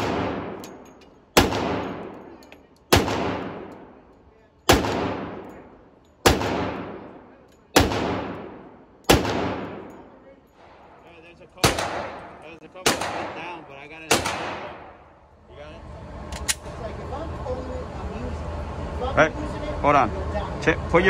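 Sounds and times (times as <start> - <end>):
pistol shots echoing indoors: 1.3 - 2.2, 2.9 - 3.9, 4.7 - 5.6, 6.2 - 10.0, 11.6 - 15.1.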